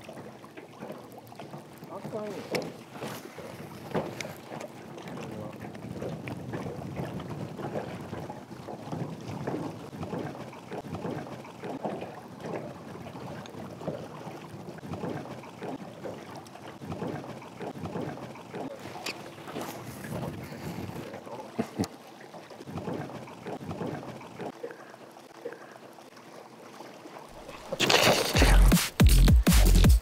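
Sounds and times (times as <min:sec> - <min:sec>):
water lapping against boat hull: 0:00.0 - 0:29.8
wind buffeting microphone: 0:05.3 - 0:10.1.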